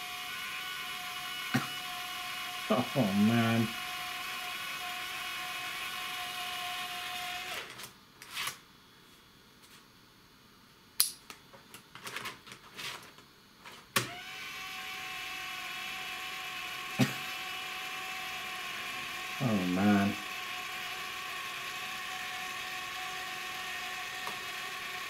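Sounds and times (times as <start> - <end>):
sharp click: 11.0 - 11.4
floppy drive whining: 14.0 - 25.0.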